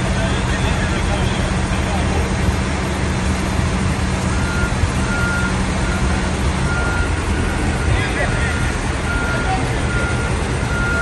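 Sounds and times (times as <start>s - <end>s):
large vehicle engine rumbling: 0.0s - 11.0s
reversing alarm beeping: 4.3s - 11.0s.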